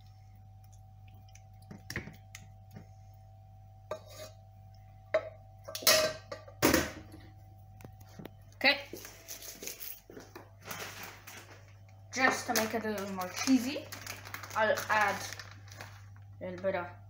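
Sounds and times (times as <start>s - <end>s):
low hum: 0.0s - 17.0s
wooden spoon scraping ceramic dish: 3.9s - 4.4s.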